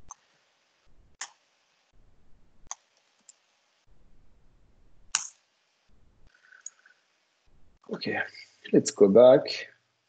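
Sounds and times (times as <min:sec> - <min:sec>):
low hum: 0:00.9 - 0:01.2, 0:01.9 - 0:02.7, 0:03.9 - 0:05.2, 0:05.9 - 0:06.9
keyboard and mouse clicks: 0:01.2 - 0:01.4, 0:02.6 - 0:03.4, 0:05.1 - 0:05.4.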